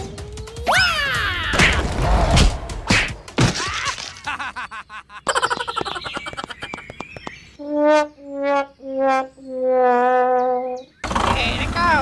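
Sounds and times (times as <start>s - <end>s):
cartoon thumps: 7.6s - 10.7s.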